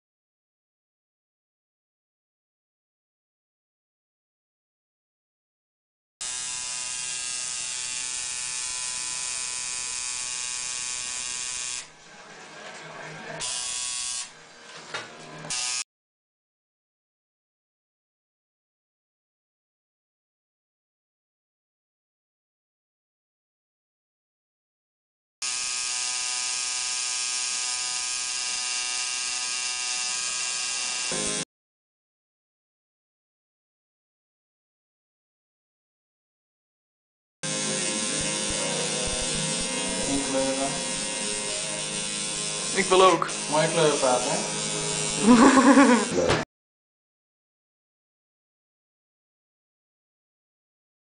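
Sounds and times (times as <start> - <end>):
tattoo machine buzzing: 6.2 - 11.9, 13.4 - 14.4, 15.5 - 15.8, 25.4 - 31.4, 37.4 - 46.4.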